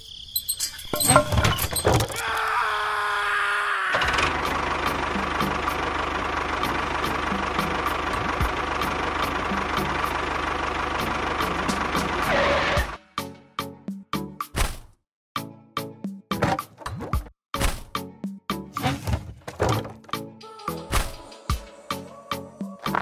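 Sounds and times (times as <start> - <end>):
model tractor engine running: 4.0 - 12.3.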